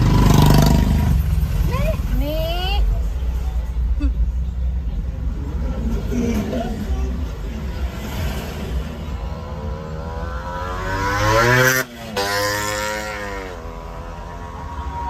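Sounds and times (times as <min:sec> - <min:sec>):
vehicle engine revving: 0:00.0 - 0:02.2, 0:05.3 - 0:15.0.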